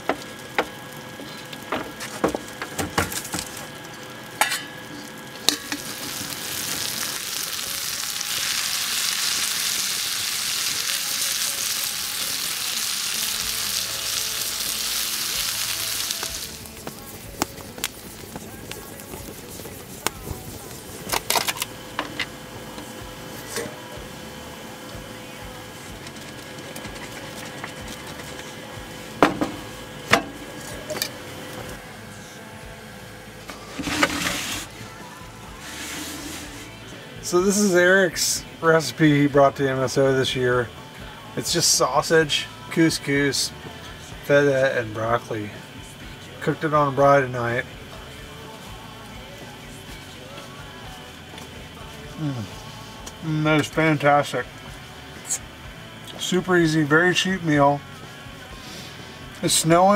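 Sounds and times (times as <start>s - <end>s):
broccoli sizzling in a skillet: 2.4s - 23.6s
rustling scrape: 33.5s - 34.8s, 35.6s - 36.8s.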